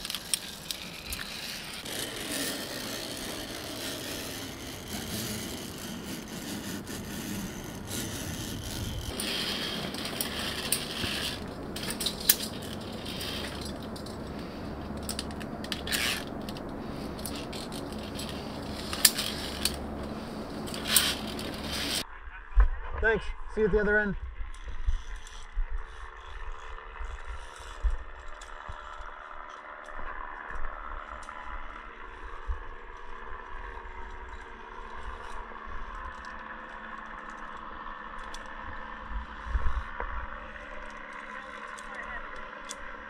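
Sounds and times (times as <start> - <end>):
carabiners clicking and rattling: 0.0 - 22.0, 34.0 - 43.0.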